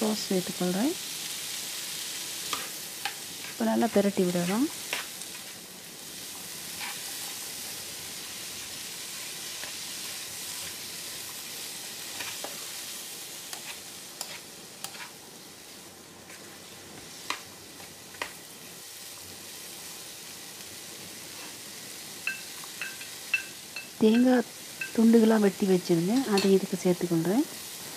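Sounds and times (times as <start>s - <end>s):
food sizzling in oil: 0.0s - 27.9s
spatula scraping pan: 6.7s - 7.5s, 13.5s - 15.2s.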